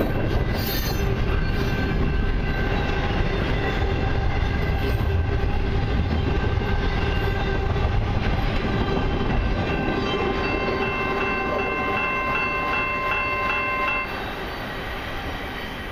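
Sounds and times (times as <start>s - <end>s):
freight train rumbling past: 0.0s - 15.9s
level crossing bell ringing: 9.9s - 14.2s.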